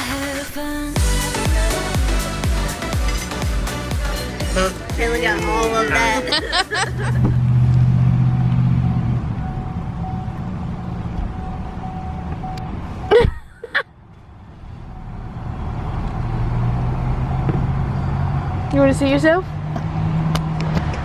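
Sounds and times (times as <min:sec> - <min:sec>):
car road rumble: 0:04.2 - 0:21.0.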